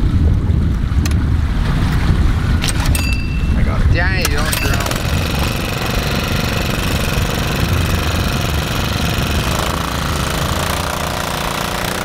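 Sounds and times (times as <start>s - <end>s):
water pump engine running: 4.5s - 12.0s.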